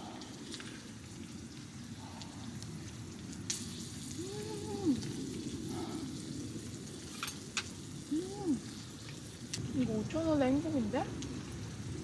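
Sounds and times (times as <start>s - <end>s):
food sizzling on grill: 0.0s - 12.0s.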